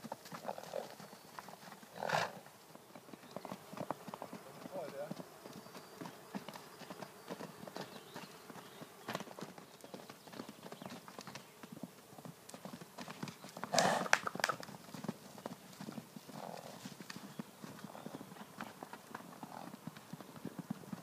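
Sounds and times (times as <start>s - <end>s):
horse hoofbeats on dirt: 0.0s - 21.0s
horse call: 13.7s - 14.5s.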